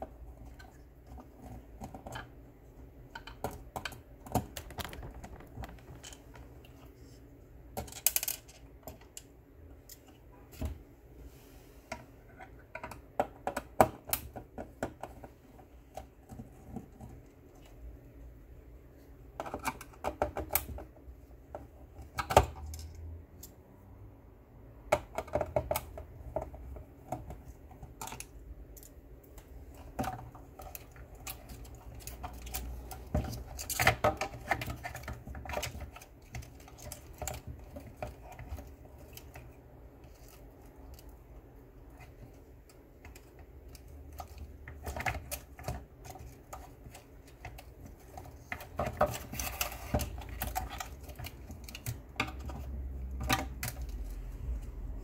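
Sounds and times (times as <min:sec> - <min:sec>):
clicks of hard plastic parts: 0:03.1 - 0:06.5.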